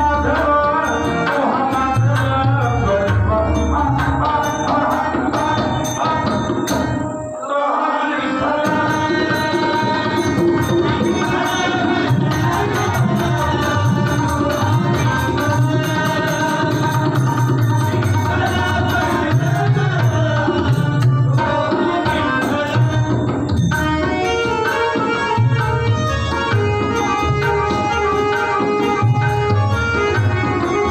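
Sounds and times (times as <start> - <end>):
man singing: 0.0 - 25.7
harmonium: 0.0 - 30.9
hand drums: 8.6 - 30.9.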